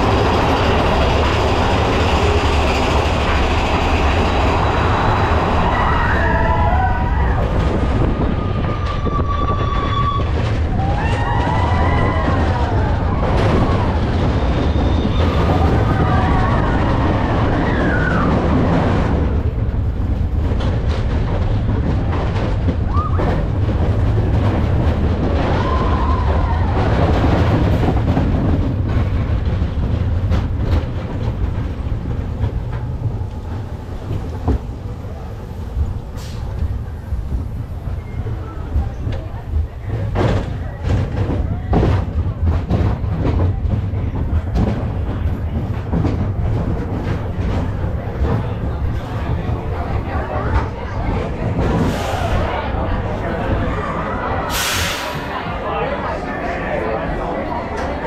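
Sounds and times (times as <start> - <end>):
roller coaster cars rumbling: 0.0 - 58.0
clacks and knocks: 7.3 - 52.0.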